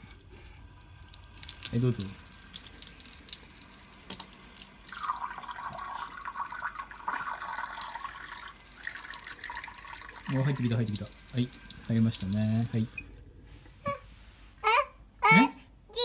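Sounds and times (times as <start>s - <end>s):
water filling a cup: 0.0s - 13.1s
tap water splashing into sink: 1.1s - 13.1s.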